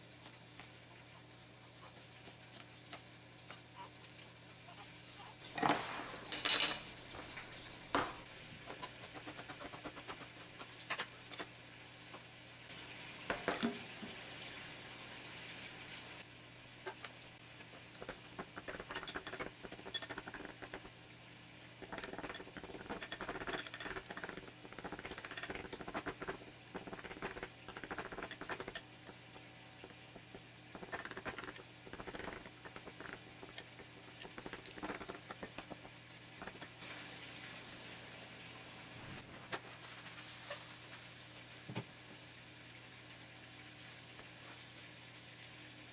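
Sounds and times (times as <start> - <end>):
utensils knocking on counter: 6.3 - 7.3, 18.0 - 20.9, 21.8 - 28.8
tomatoes squishing: 29.8 - 36.8.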